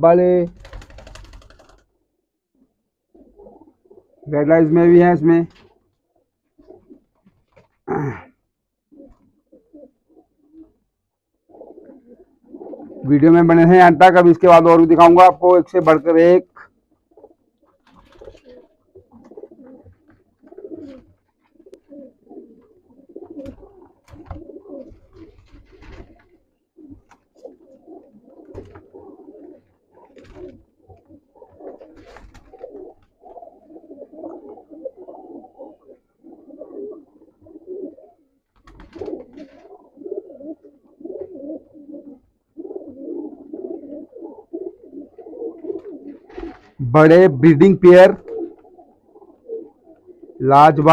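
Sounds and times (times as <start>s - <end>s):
pigeons cooing: 1.2s - 50.9s.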